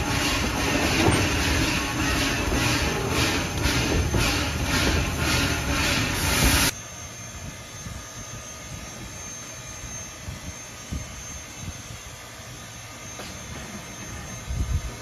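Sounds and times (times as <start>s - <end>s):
train wheels rumbling on rails: 0.0s - 6.7s, 13.1s - 15.0s.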